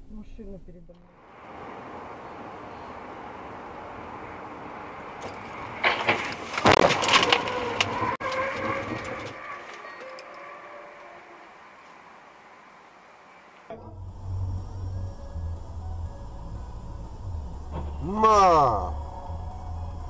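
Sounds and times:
road noise inside car: 0.0s - 20.0s
car crash bangs and crunches: 5.2s - 9.9s
whining tone: 6.8s - 20.0s.

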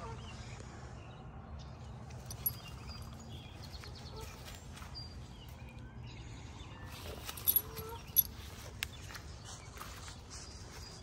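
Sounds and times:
footsteps in dry leaves: 3.5s - 5.6s, 6.9s - 11.0s.

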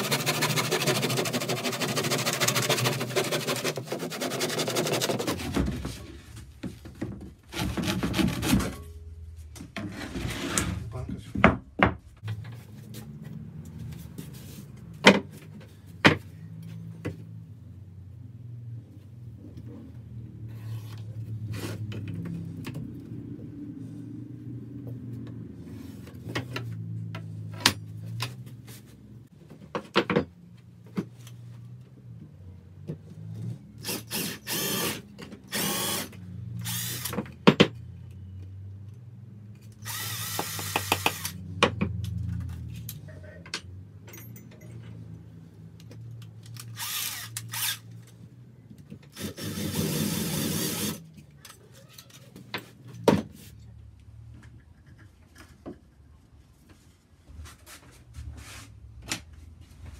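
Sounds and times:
cordless drill boring into wood: 33.8s - 37.1s, 39.8s - 41.4s, 46.8s - 47.8s, 49.2s - 51.0s.

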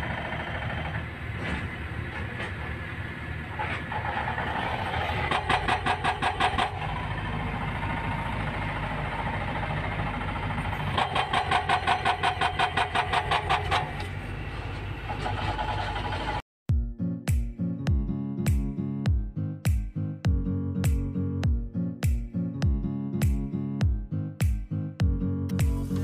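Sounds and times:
excavator diesel engine running: 0.0s - 16.4s
hydraulic breaker hammering rock: 5.1s - 6.9s, 10.7s - 14.1s.

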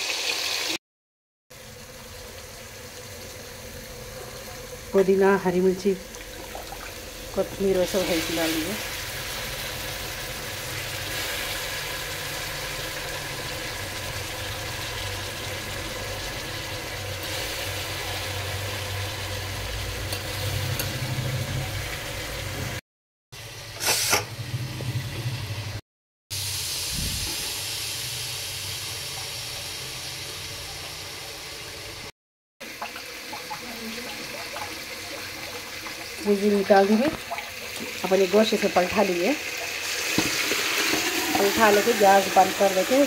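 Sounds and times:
meat sizzling in a pressure cooker: 0.0s - 0.8s, 1.5s - 22.8s, 26.3s - 43.0s
short loud hiss: 23.8s - 24.3s.

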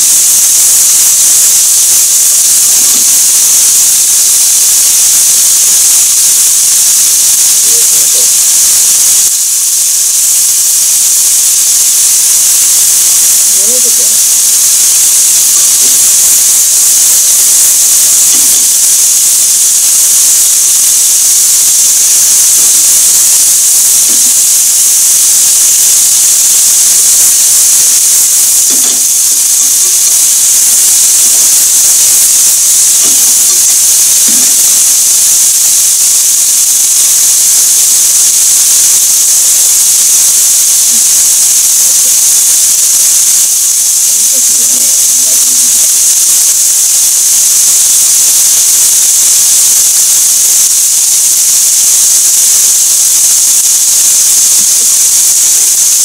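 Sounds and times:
food sizzling in a frying pan: 0.0s - 56.0s.

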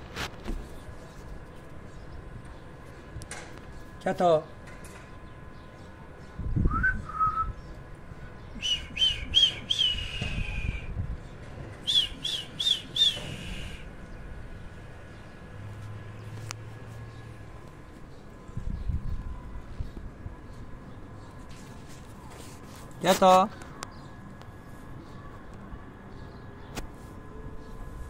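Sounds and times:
person whistling: 6.7s - 7.5s, 8.6s - 10.8s, 11.9s - 13.8s.

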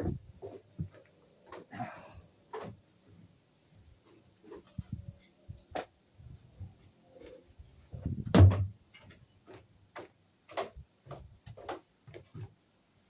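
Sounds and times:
footsteps on wooden boards: 0.0s - 2.8s, 7.9s - 12.6s
heavy thump: 8.0s - 8.8s.

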